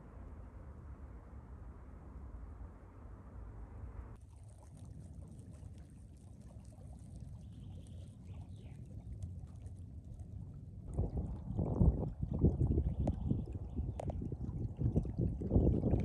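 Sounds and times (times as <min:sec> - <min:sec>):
wind buffeting microphone: 0:10.8 - 0:16.0.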